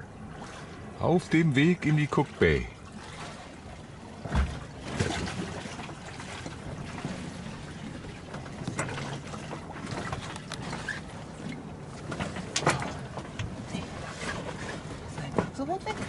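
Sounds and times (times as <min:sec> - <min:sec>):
water splashing along boat hull: 0:00.0 - 0:16.0
sharp splash or knock: 0:04.2 - 0:06.4.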